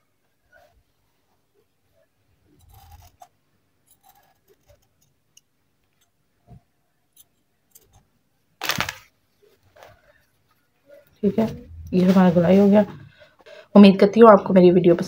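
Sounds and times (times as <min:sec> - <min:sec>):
cloth rustling: 0:08.6 - 0:13.2.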